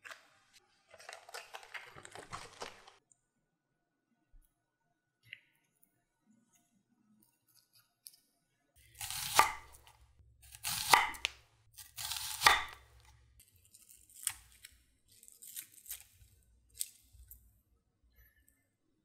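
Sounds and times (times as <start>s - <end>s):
knife slicing onion: 8.8s - 17.5s
onion slices crackling: 8.8s - 17.5s.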